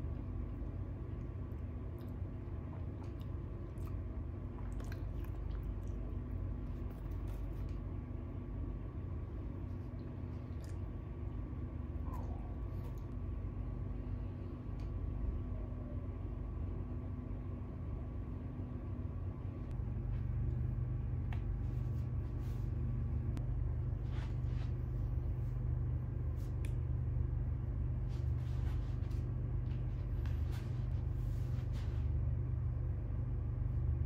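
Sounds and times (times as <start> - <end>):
low rumble and hum: 0.0 - 34.0.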